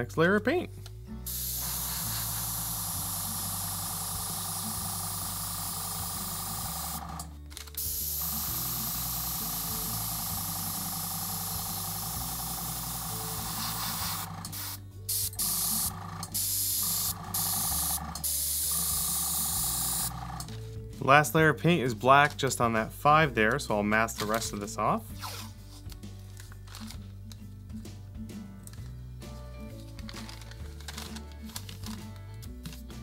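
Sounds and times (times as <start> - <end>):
airbrush spraying paint: 1.3 - 7.0, 7.8 - 20.2.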